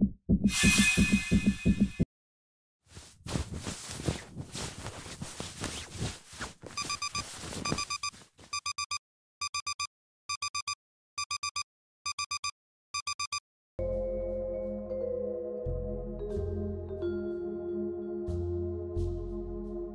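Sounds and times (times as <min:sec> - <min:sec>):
electronic alarm beeping: 0:06.8 - 0:13.4.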